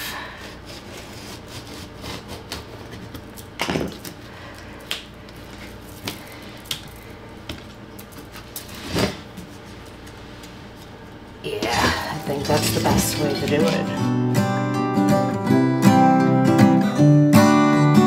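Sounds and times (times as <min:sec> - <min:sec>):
knife cutting vinyl flooring: 0:00.4 - 0:04.0.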